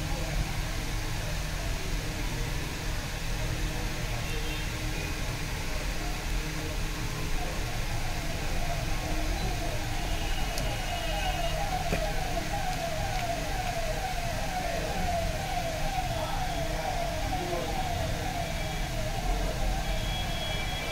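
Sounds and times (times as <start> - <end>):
siren falling sweeps: 7.9 - 20.9.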